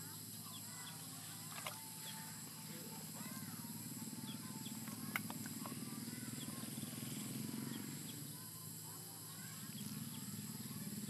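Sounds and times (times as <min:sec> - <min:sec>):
bird chirps: 0:00.0 - 0:01.1, 0:01.7 - 0:11.0
high insect buzz: 0:00.0 - 0:11.0
sharp click: 0:04.8 - 0:05.8.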